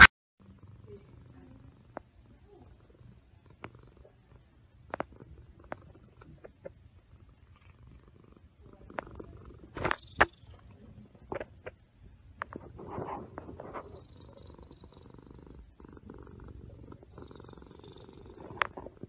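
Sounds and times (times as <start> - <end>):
cat purring: 0.4 - 19.0
knocks and rubbing on phone: 12.4 - 13.9.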